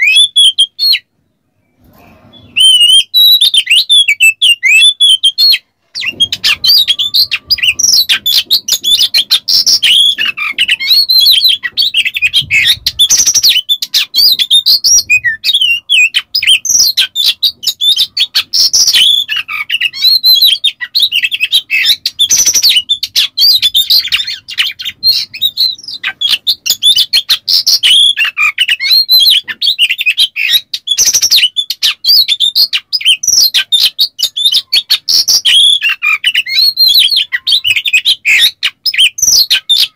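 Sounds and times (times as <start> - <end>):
songbird singing rapid whistles: 0.0 - 39.9
harsh rasping bird notes: 5.8 - 20.2.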